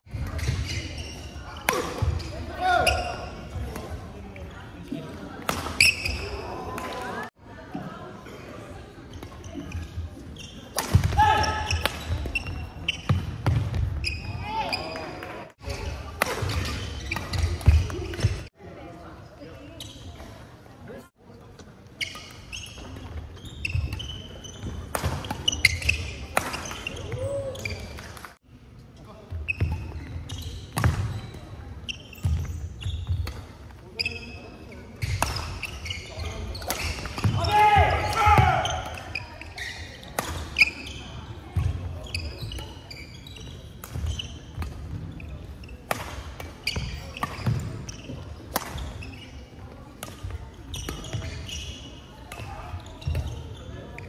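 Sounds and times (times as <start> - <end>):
shoes squeaking on floor: 0.1 - 3.7, 5.8 - 6.6, 9.1 - 18.5, 19.7 - 20.4, 21.9 - 28.0, 29.3 - 54.0
racket hitting shuttlecock: 1.6 - 2.2, 10.7 - 12.1, 24.9 - 26.9, 35.0 - 35.8, 40.1 - 40.6, 45.8 - 47.7, 48.5 - 49.0.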